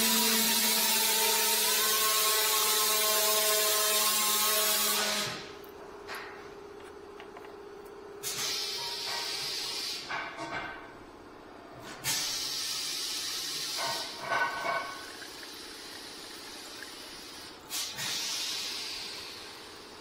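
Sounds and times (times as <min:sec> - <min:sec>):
liquid pouring and splashing: 0:12.8 - 0:18.2.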